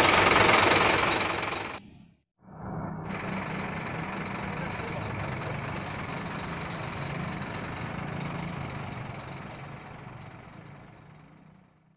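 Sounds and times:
diesel engine idling: 0.0 - 1.8, 3.0 - 11.9.

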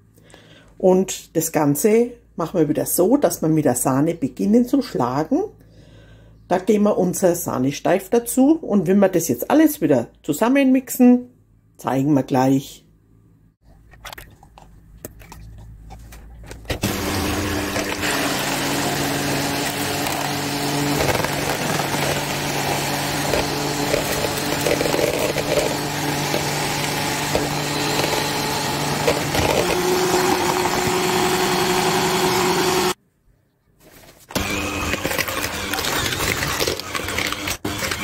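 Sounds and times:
electric hand mixer whipping: 16.7 - 33.0, 34.3 - 38.0.

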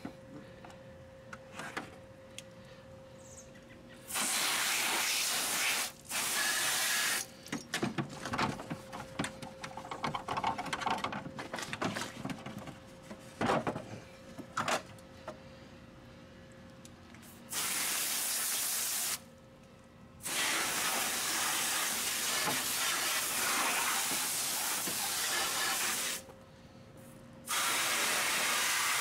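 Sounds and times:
hose nozzle spraying water: 4.1 - 7.3, 20.3 - 26.2, 27.5 - 29.0.

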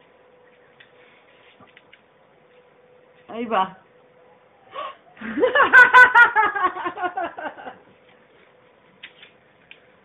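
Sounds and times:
person laughing high-pitched: 4.8 - 7.8.

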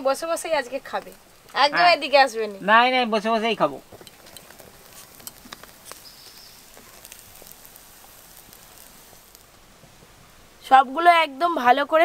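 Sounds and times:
food sizzling on a fire: 0.0 - 12.0
sharp pops: 3.7 - 10.6.

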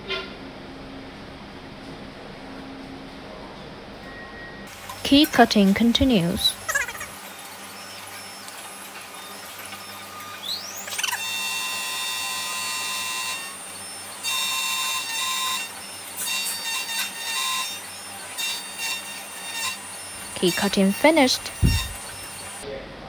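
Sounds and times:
key cutting machine whining: 6.0 - 22.6.

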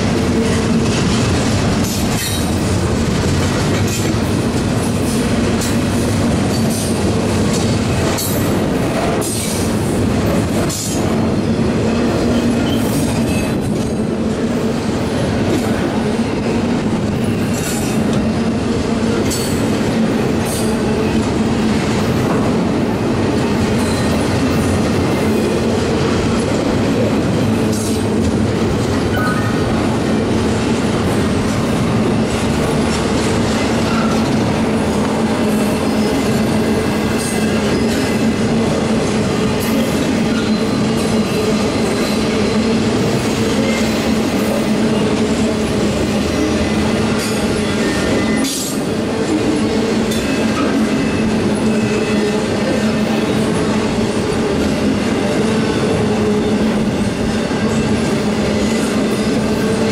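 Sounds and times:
wheels clacking over rail joints: 0.0 - 11.2
train wheels rumbling on rail: 0.0 - 59.9.

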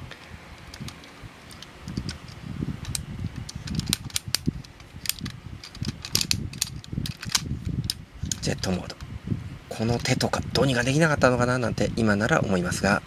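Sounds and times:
plastic toy parts clicking: 0.6 - 9.0.

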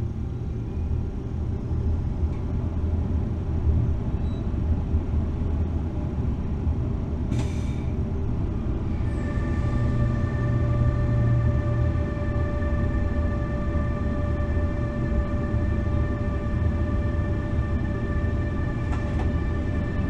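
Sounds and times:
locomotive rumbling on track: 0.0 - 20.0
air hiss: 7.3 - 8.0.

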